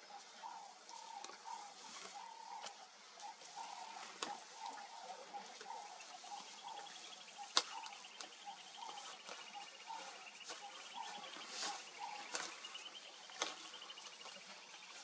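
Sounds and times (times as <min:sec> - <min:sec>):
birds calling in short notes: 0:00.4 - 0:15.0
sharp snaps: 0:07.4 - 0:08.3.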